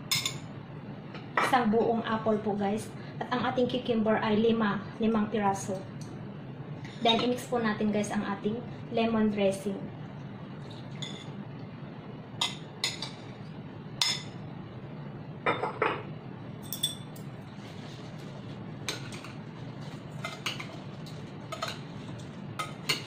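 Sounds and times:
steady low hum: 0:00.0 - 0:23.0
utensils clinking against bowls: 0:16.6 - 0:17.3, 0:20.1 - 0:23.0.

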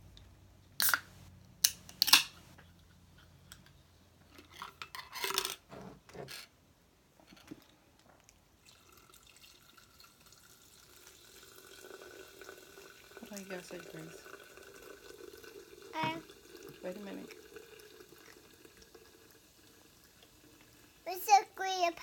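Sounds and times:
can handling: 0:00.8 - 0:02.4
fizzy water pouring over ice: 0:08.6 - 0:22.0
carbonation hiss: 0:10.1 - 0:22.0.

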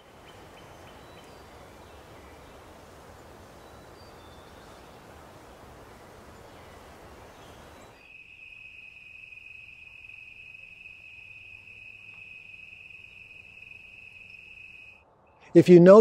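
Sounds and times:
soft outdoor hiss: 0:00.0 - 0:16.0
cricket trilling: 0:07.5 - 0:15.0.

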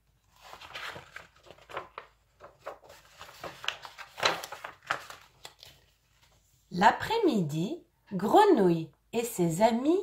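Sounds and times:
book pages rustling: 0:00.0 - 0:06.7.

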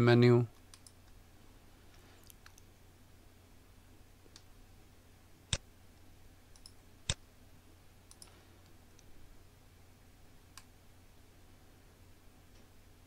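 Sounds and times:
faint low hum: 0:00.0 - 0:13.0
computer mouse clicking: 0:00.5 - 0:01.2, 0:01.9 - 0:02.7, 0:06.5 - 0:07.2, 0:08.1 - 0:09.1.

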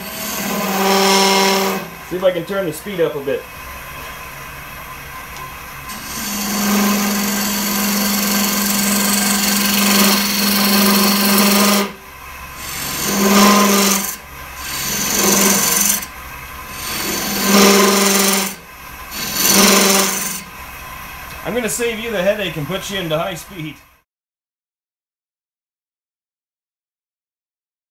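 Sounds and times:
gouge cutting wood on lathe: 0:00.0 - 0:03.0, 0:05.9 - 0:20.6
lathe humming: 0:00.0 - 0:23.6.

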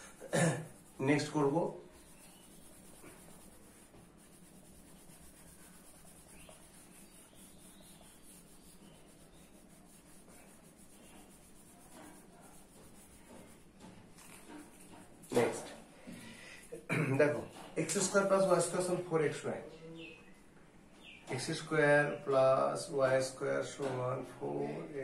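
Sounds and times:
hand rubbing whiteboard: 0:00.0 - 0:15.6.

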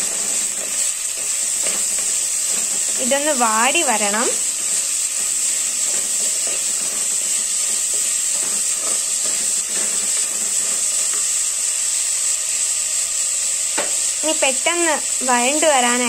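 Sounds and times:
onions frying in hot oil: 0:00.0 - 0:16.0
ladle scraping a pot: 0:04.5 - 0:11.2.

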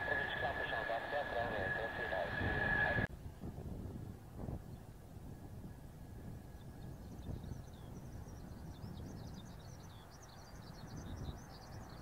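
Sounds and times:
jet engines idling rumble: 0:00.0 - 0:03.1
small birds twittering: 0:06.5 - 0:12.0.

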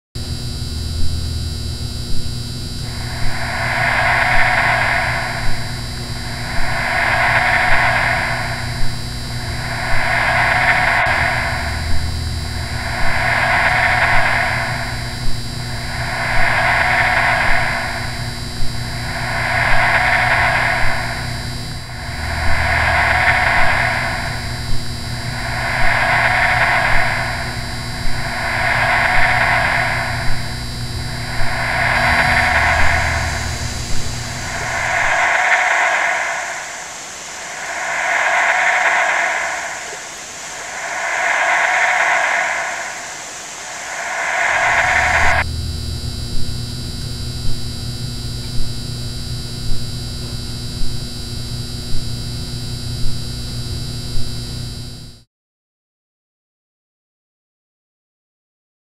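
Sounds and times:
whooshing electronic noise: 0:00.4 - 0:48.4
steady high electronic tones: 0:01.0 - 0:47.8.

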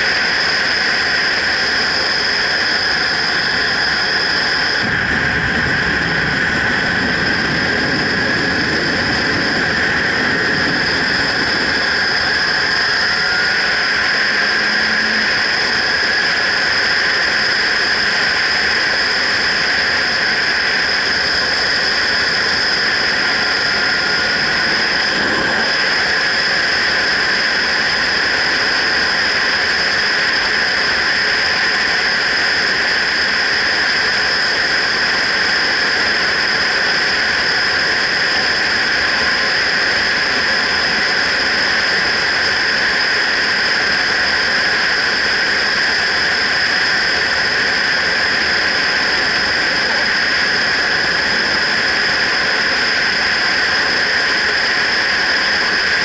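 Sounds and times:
low wind buffeting: 0:00.0 - 0:56.0
wind rush on microphone: 0:00.0 - 0:56.0
road noise: 0:13.0 - 0:16.7
motorcycle engine: 0:13.2 - 0:16.5.

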